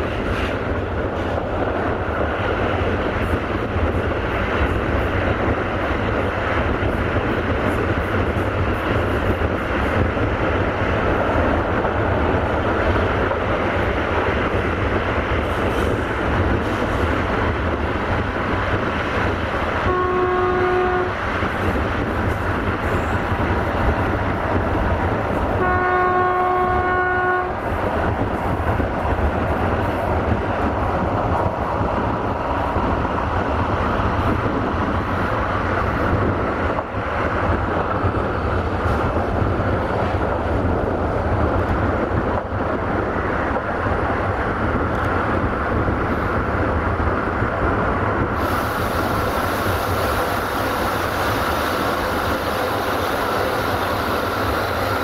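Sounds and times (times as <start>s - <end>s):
train wheels on rails: 0.0s - 55.0s
train horn: 19.8s - 21.2s, 25.6s - 27.6s
hiss: 48.4s - 55.0s.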